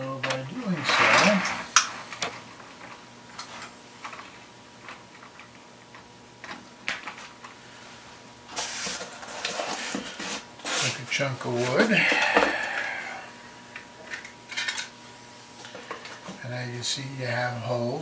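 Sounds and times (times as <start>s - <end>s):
faint steady hum: 0.0s - 18.0s
rustling handling noise: 6.9s - 12.3s.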